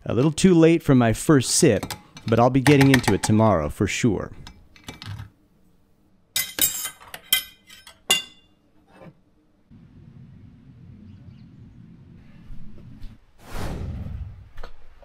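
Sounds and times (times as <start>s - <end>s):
faint low background rumble: 9.4s - 15.0s.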